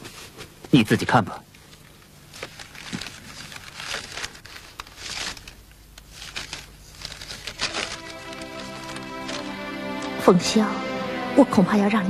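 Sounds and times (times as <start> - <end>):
paper rustling and crinkling: 1.6 - 10.2.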